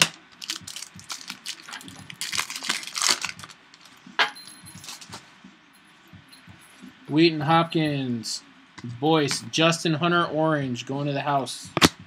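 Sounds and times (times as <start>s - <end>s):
foil wrapper snap: 0.0s - 3.6s
foil wrapper tearing and crinkling: 0.0s - 3.9s.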